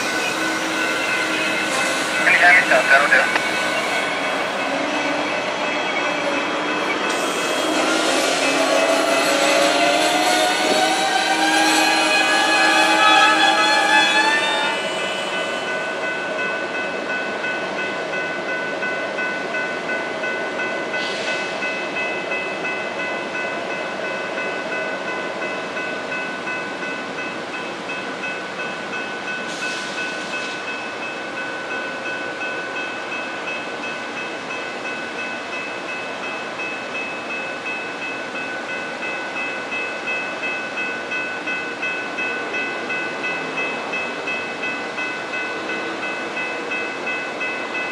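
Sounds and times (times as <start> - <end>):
crossing warning bells ringing: 0.0 - 47.9
standing train rumble: 0.0 - 47.9.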